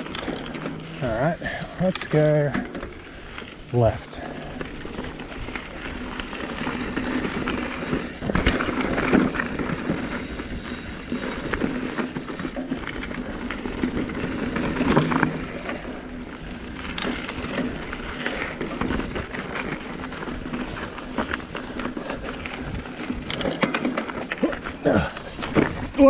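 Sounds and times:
bike rattling and knocking: 0.0 - 26.0
bike tyres crunching over gravel: 0.0 - 26.0
wind noise on microphone: 5.2 - 13.2, 16.8 - 23.5.

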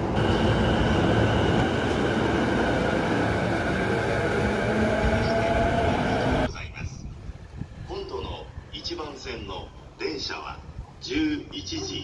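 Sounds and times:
train wheels rumbling on rail: 0.0 - 8.7
high electric whine: 0.2 - 6.5.

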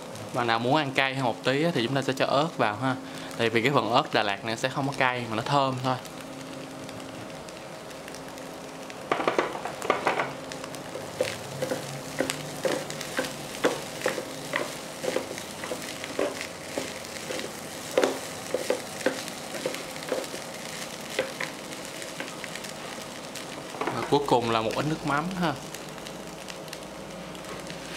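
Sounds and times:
rice sizzling in frying pan: 0.0 - 27.9
utensils clacking against pan: 11.2 - 20.4.

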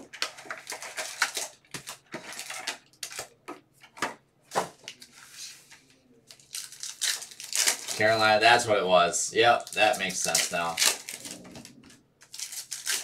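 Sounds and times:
foil packs crinkling: 0.0 - 3.4, 6.3 - 8.6, 9.4 - 13.0.

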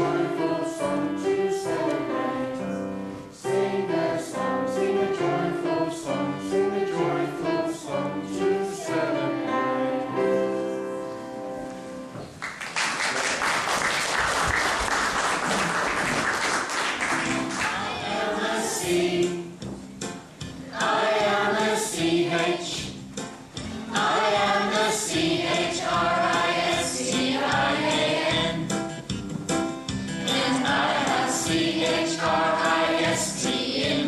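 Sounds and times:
children singing: 0.0 - 2.6, 3.4 - 10.4, 17.6 - 19.6, 20.7 - 22.9, 23.9 - 28.7, 30.2 - 34.0
applause: 12.4 - 17.8.

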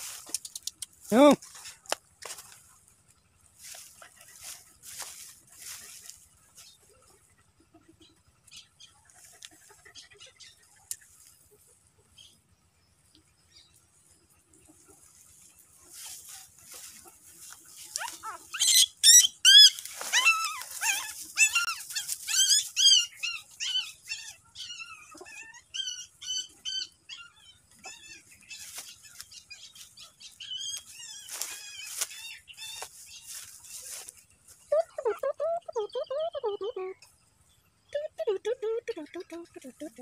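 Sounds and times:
puppies squealing: 17.9 - 29.7, 30.4 - 33.0.

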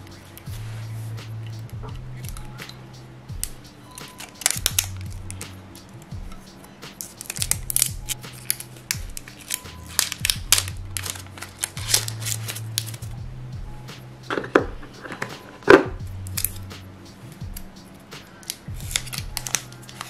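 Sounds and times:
plastic knocks: 14.3 - 16.0.

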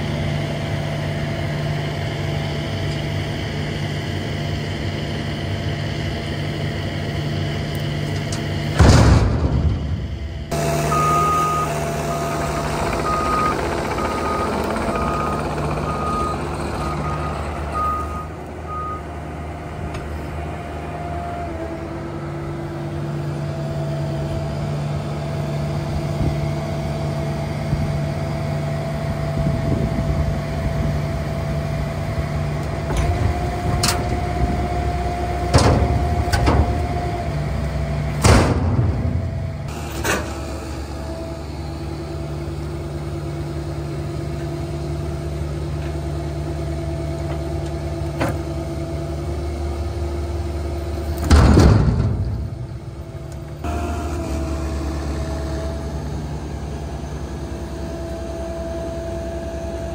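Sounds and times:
hydraulic whine: 0.0 - 19.0, 29.4 - 59.9
excavator diesel engine: 0.0 - 59.9
logs knocking into steel trailer: 8.8 - 10.3, 38.2 - 40.3, 51.2 - 53.1
warning beeper: 10.5 - 19.0.

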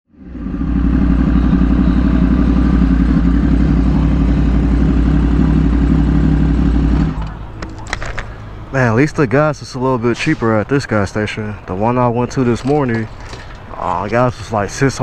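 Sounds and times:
motorcycle engine idling: 0.2 - 7.2.

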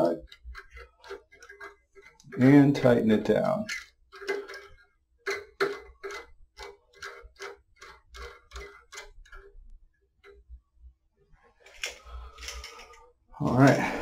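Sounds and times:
faint handling sounds: 0.0 - 14.0
nut turning with small clicks: 0.2 - 2.4, 3.7 - 9.6.

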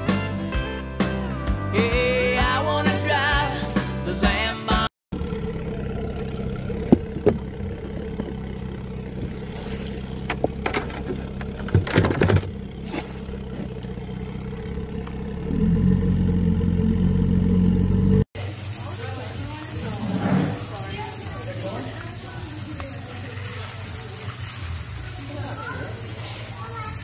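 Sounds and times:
outboard motor running: 5.1 - 27.0
sharp knocks and clatters: 10.2 - 12.6.

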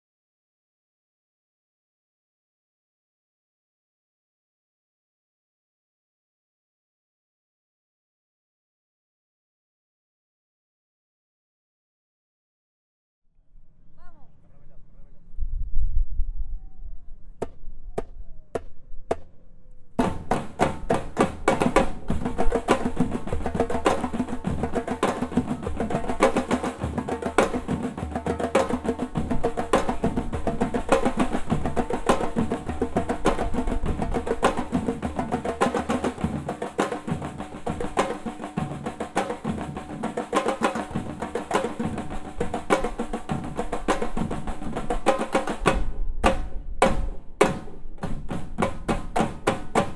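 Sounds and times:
drum ensemble playing funk: 20.0 - 49.9.

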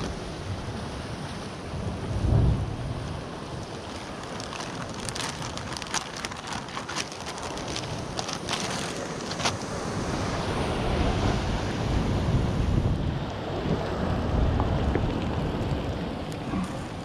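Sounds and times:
surf washing against rocks: 0.0 - 17.0
plastic packet crinkling: 3.7 - 9.6
wind buffeting microphone: 4.4 - 17.0.

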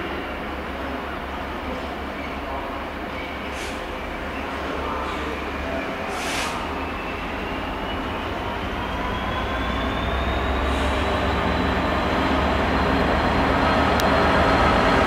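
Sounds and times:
locomotive diesel engine rumble: 0.0 - 15.0
short hiss: 3.5 - 3.9, 6.1 - 6.7.

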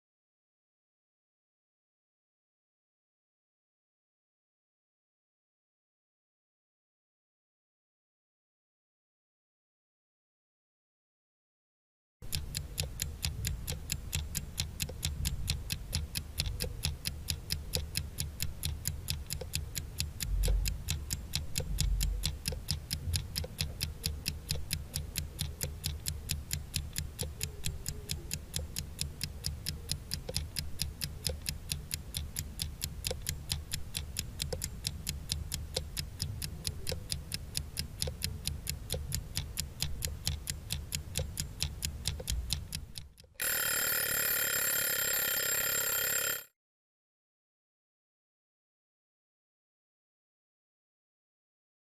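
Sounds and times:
clock ticking: 12.2 - 46.4.

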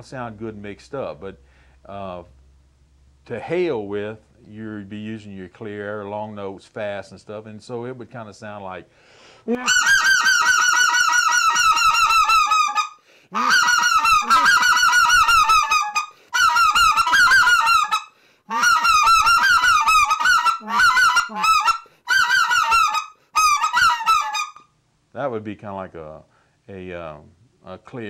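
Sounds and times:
short breaths: 1.4 - 1.9, 8.9 - 9.6, 13.0 - 13.4, 16.1 - 16.4, 18.1 - 18.5, 21.8 - 22.1, 23.1 - 23.4, 26.3 - 26.6
goose call honking: 9.6 - 24.7.

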